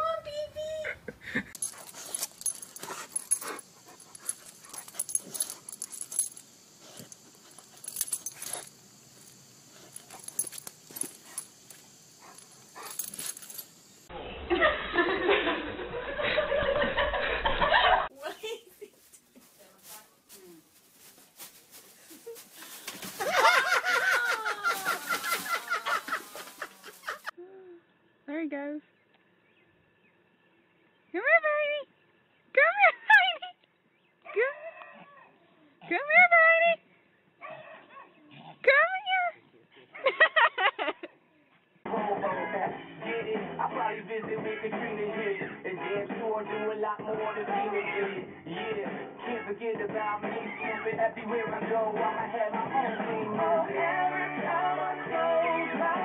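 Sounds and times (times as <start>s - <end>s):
dog sniffing and snuffling: 1.6s - 13.8s
plastic bin liner rustling: 19.0s - 23.8s.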